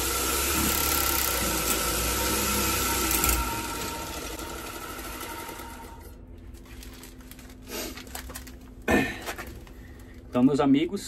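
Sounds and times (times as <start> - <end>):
motor and rollers whirring: 0.0 - 6.2.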